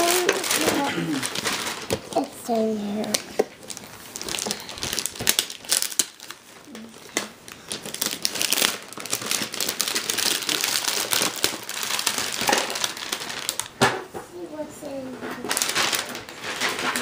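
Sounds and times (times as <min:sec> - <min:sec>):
paper ripping: 0:00.0 - 0:02.0
wrapping paper crinkling: 0:00.0 - 0:13.8, 0:15.0 - 0:17.0.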